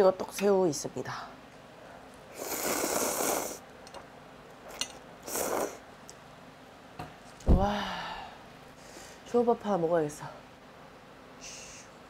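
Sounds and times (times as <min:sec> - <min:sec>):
noodles slurped loudly: 0:02.4 - 0:03.6.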